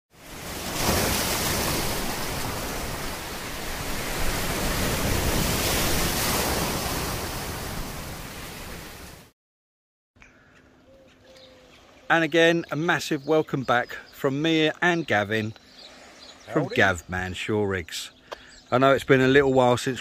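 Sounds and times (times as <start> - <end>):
sea waves rushing: 0.1 - 9.3.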